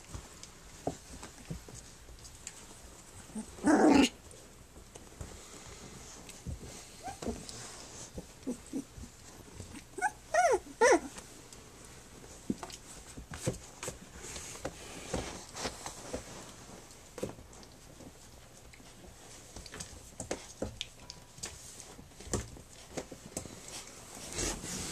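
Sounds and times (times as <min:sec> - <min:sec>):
puppies whimpering and yelping: 0:06.9 - 0:07.4, 0:08.4 - 0:11.2.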